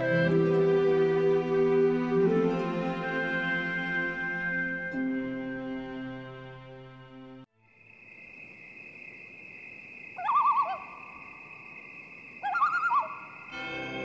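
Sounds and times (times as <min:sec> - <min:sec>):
brass music: 0:00.0 - 0:07.5
orchestral music: 0:00.0 - 0:07.5, 0:13.5 - 0:14.0
bird quavering calls: 0:10.2 - 0:11.2, 0:12.4 - 0:13.4.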